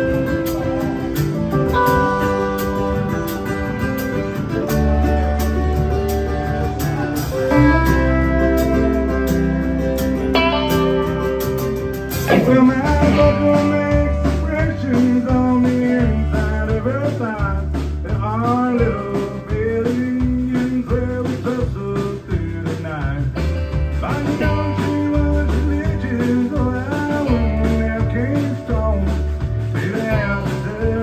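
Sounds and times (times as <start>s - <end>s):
bending electric guitar lead: 0.0s - 31.0s
country-rock band playing: 0.0s - 31.0s
man singing: 12.2s - 31.0s.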